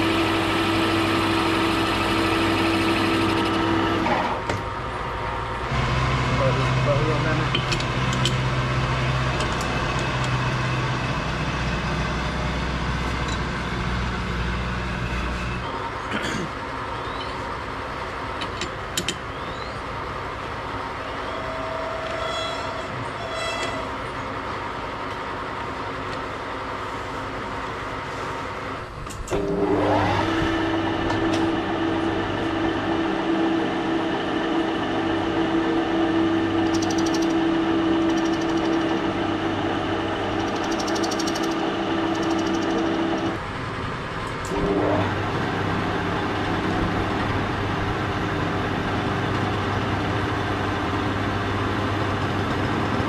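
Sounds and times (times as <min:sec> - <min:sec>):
metal lathe whining: 0:00.0 - 0:04.5, 0:20.6 - 0:24.4, 0:29.3 - 0:53.0
machine shop hum: 0:00.0 - 0:53.0.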